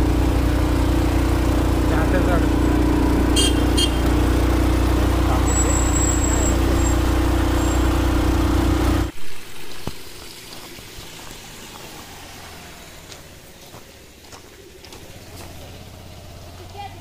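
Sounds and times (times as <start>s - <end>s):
scooter engine running: 0.0s - 9.2s, 11.6s - 17.0s
wind and road noise: 0.0s - 17.0s.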